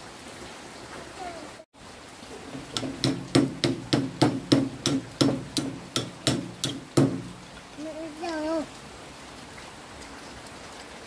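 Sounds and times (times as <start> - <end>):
ringing knocks: 2.7 - 7.4.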